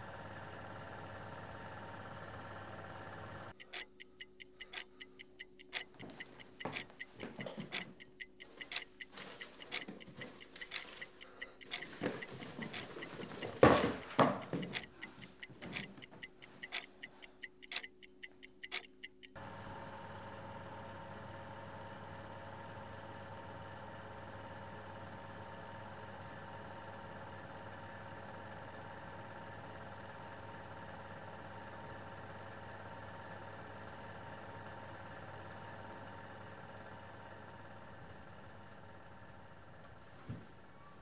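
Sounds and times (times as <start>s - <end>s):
clock ticking: 3.5s - 19.4s.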